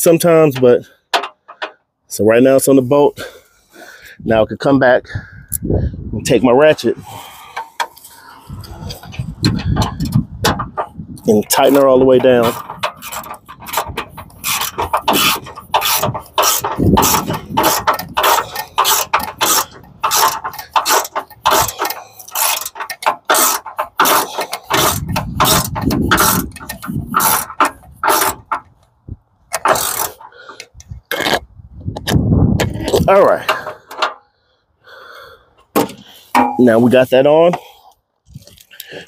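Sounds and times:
ratchet wrench clicking: 11.6s - 28.6s, 29.5s - 31.4s.

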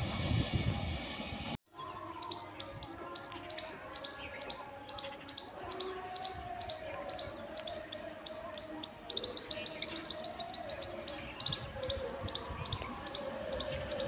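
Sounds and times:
train rumble: 0.0s - 1.6s
small birds chirping: 1.7s - 14.0s.

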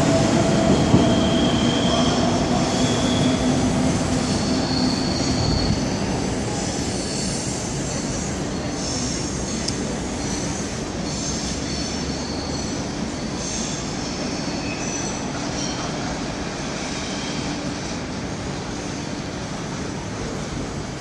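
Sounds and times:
train wheels rumbling on rail: 0.0s - 21.0s
high-pitched wheel squeal: 4.2s - 6.1s.

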